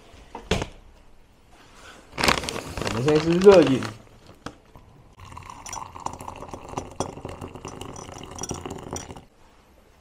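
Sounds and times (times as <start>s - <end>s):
liquid pouring into glass mug: 4.8s - 9.3s
glass clinking: 5.2s - 9.3s.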